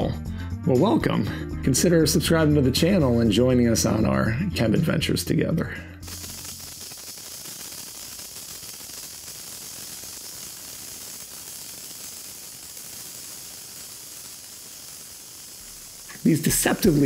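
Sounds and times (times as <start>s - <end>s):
sparkler hissing and crackling: 6.0s - 17.0s.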